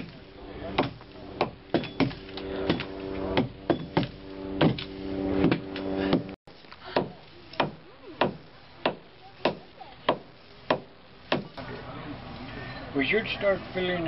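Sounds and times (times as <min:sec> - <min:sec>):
blade chopping wood: 0:00.8 - 0:06.3.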